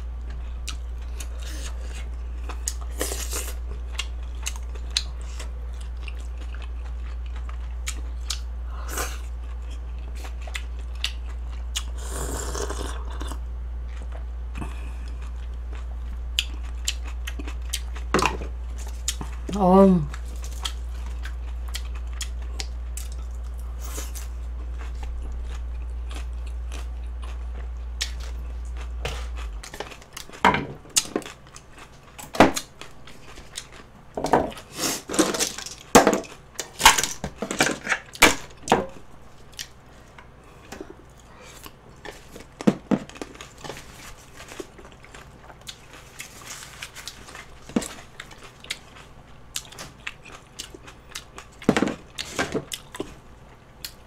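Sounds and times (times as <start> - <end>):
chewing crunchy vegetables: 0.0 - 54.0
steady low hum: 0.0 - 54.0.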